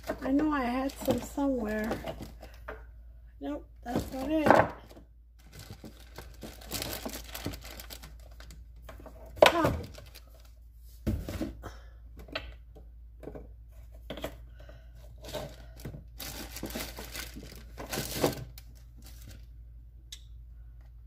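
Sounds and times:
rustling: 5.4s - 9.1s.

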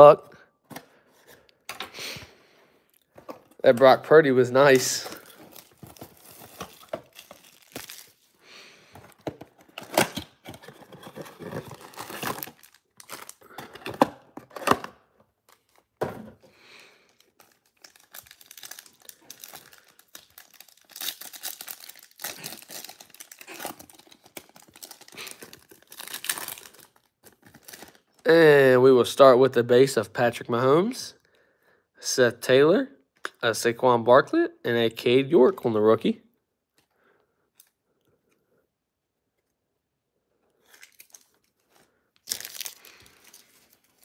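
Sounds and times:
shrink-wrap crinkling: 4.6s - 14.7s, 16.5s - 28.2s, 40.6s - 44.0s
foil packs rustling: 4.8s - 8.3s, 8.9s - 14.2s
pack tearing open: 4.8s - 8.3s, 9.6s - 15.8s, 17.1s - 28.1s, 40.6s - 41.6s, 42.2s - 44.0s.

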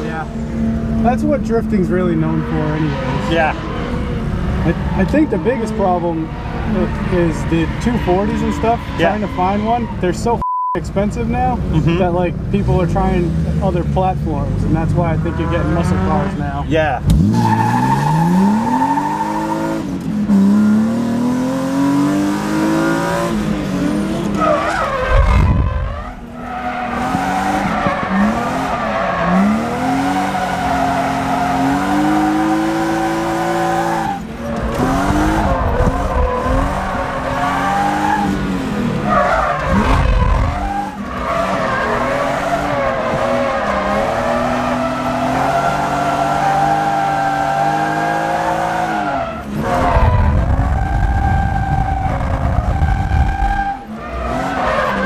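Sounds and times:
tires squealing: 0.0s - 10.4s, 14.8s - 55.0s
car engine revving hard: 14.5s - 55.0s.

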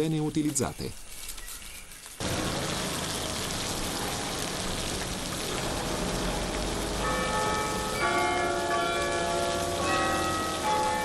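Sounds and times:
hiss of falling water: 2.2s - 11.0s
bells ringing: 5.6s - 11.0s.

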